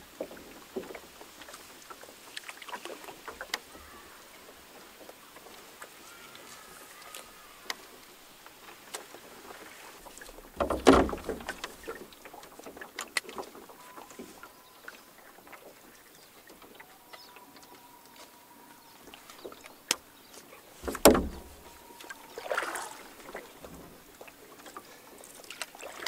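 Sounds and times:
knocks against canoe hull: 10.2 - 12.0, 20.8 - 21.7.

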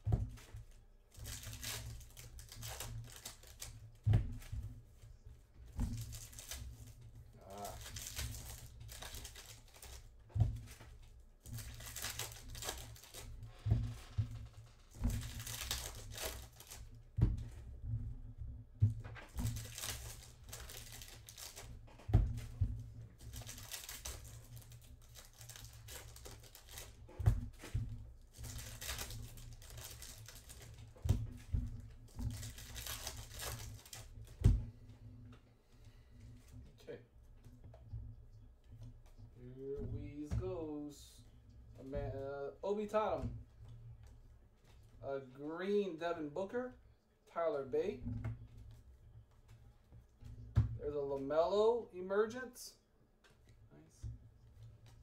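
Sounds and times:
foil wrappers tearing and crinkling: 1.1 - 3.8, 5.8 - 10.1, 11.4 - 13.4, 14.4 - 16.9, 19.3 - 21.8, 23.2 - 27.7, 28.3 - 31.1, 32.1 - 34.4.

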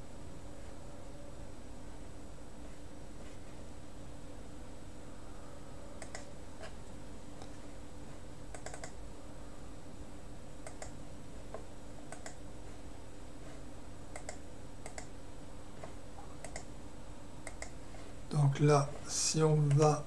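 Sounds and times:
steady low hum: 0.0 - 20.0
computer mouse clicks: 6.0 - 6.8, 8.5 - 9.0, 10.6 - 11.0, 12.1 - 12.4, 14.1 - 15.1, 15.8 - 16.7, 17.4 - 17.8.

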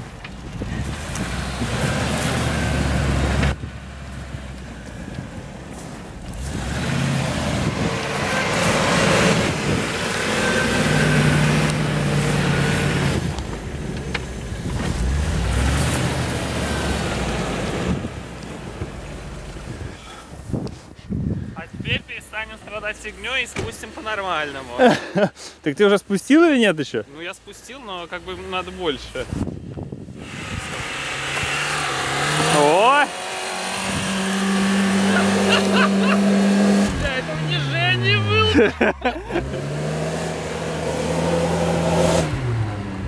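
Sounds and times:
engine revving: 0.6 - 3.7, 4.9 - 19.7, 30.1 - 43.0.

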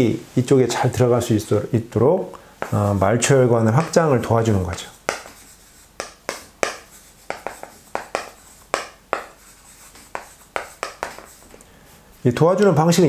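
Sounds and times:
chalk tapping and scratching: 2.6 - 11.6.

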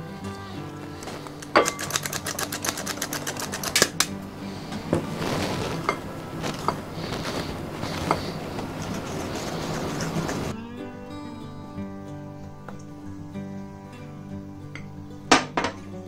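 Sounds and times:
spoon scraping in a bowl: 1.0 - 4.0, 4.6 - 10.5
flour sifter clicking: 1.0 - 4.2.

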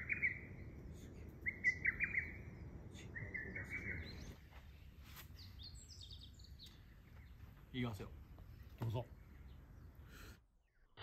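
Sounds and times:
bird calling: 0.0 - 4.6.

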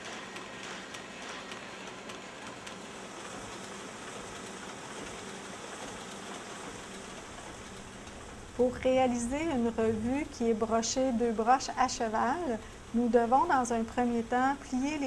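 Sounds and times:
machinery running with low hum: 0.0 - 15.0.

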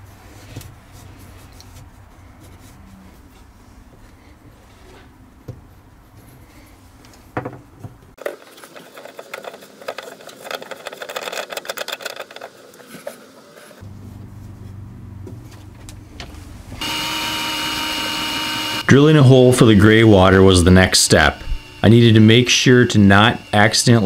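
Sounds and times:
rapid plastic clicking and scraping: 8.2 - 13.8.

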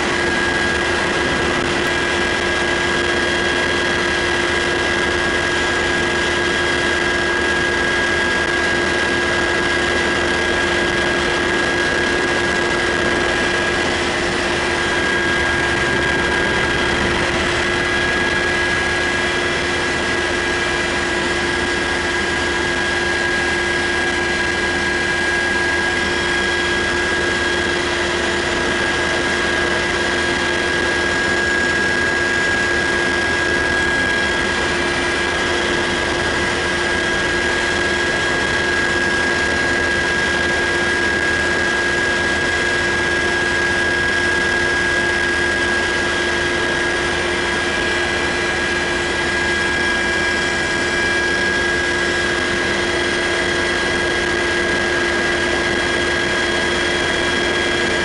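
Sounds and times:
high whine: 0.0 - 5.8, 9.0 - 22.8, 23.4 - 41.6
helicopter cabin rushing noise: 0.0 - 58.0.

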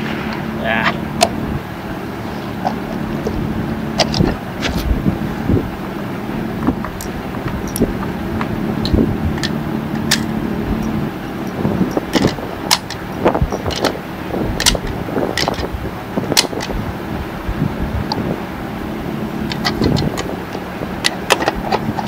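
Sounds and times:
steady low hum: 0.0 - 22.0
sharp metallic clicks: 6.6 - 14.0.

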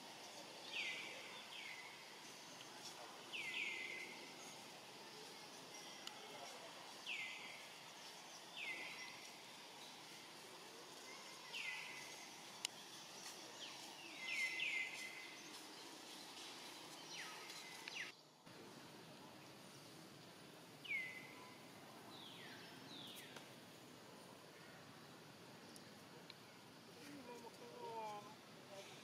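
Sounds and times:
outdoor background hiss: 0.0 - 29.0
bird chirping: 11.0 - 18.2.

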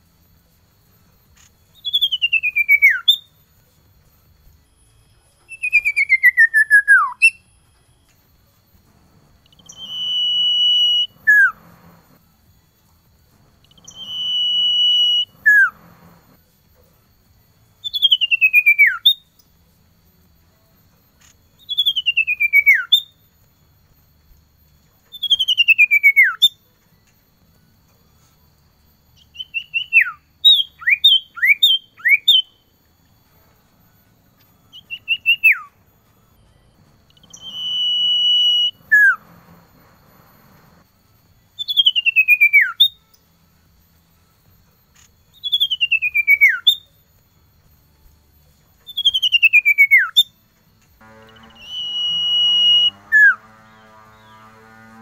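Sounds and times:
bird whistling song: 1.4 - 3.4, 4.6 - 8.2, 9.4 - 12.2, 13.6 - 16.3, 17.8 - 19.6, 21.2 - 23.3, 25.0 - 27.1, 29.1 - 32.7, 34.6 - 35.8, 37.0 - 40.8, 41.5 - 43.2, 45.3 - 47.0, 48.8 - 50.4, 51.3 - 53.4.

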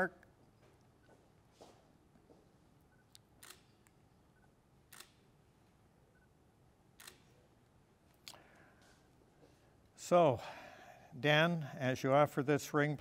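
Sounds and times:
camera shutter clicks: 3.4 - 4.0, 4.9 - 5.3, 7.0 - 7.4.

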